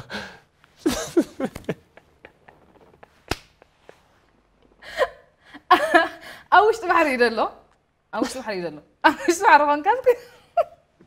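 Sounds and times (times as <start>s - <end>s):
man and woman laughing: 0.8s - 4.2s
sharp hand smack: 3.3s - 3.6s.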